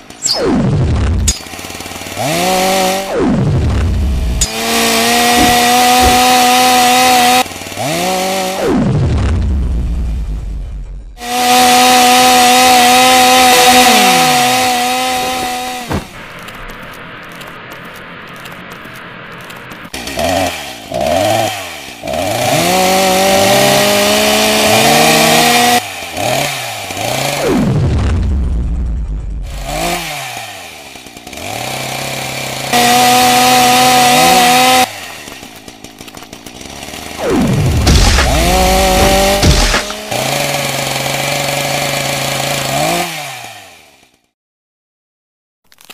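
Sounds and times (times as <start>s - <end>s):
chainsaw running: 0.0s - 44.4s
low motor hum: 0.1s - 7.7s, 13.3s - 20.0s, 34.9s - 40.6s
short thud: 5.2s - 6.6s, 15.2s - 16.2s, 37.8s - 40.0s.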